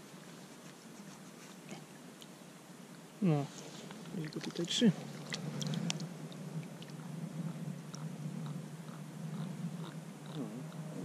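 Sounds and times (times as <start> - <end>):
steady low rumble: 3.7 - 11.0
wet clicks and crackles: 5.3 - 6.1.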